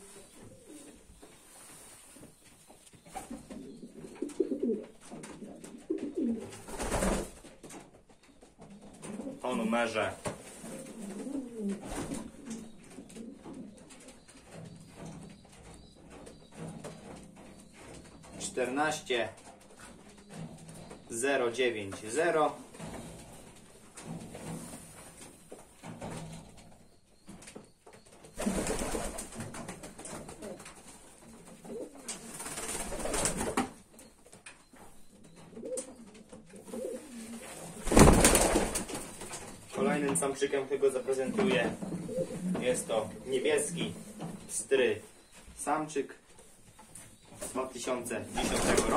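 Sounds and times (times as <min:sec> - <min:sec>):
pigeons cooing: 0:00.0 - 0:02.0, 0:02.8 - 0:07.4, 0:08.5 - 0:18.6, 0:28.3 - 0:45.4.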